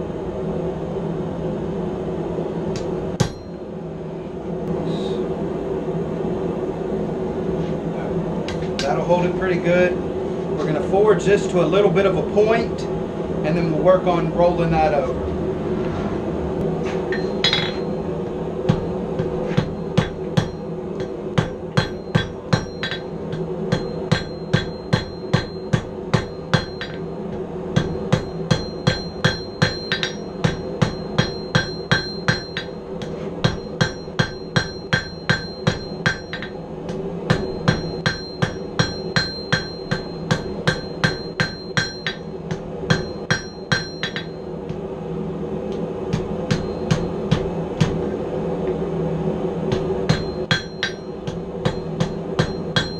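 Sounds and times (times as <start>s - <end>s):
background hum: 0.0s - 52.9s
hammer striking steel on anvil: 2.7s - 3.6s, 17.0s - 18.0s, 18.7s - 44.8s, 46.1s - 48.1s, 49.7s - 52.9s
high ring: 3.2s - 3.6s, 17.1s - 18.1s, 19.5s - 36.6s, 37.3s - 44.6s, 46.4s - 47.4s, 50.1s - 52.9s.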